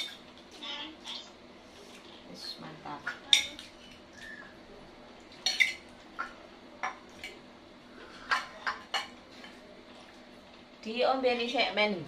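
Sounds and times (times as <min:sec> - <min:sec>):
plates and spoon clinking: 0:03.0 - 0:04.0, 0:05.3 - 0:07.4, 0:08.2 - 0:09.6.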